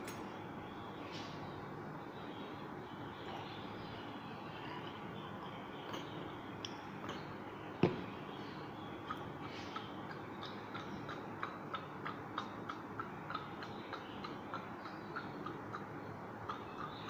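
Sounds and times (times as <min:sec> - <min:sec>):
light regular ticking: 0:08.7 - 0:17.0.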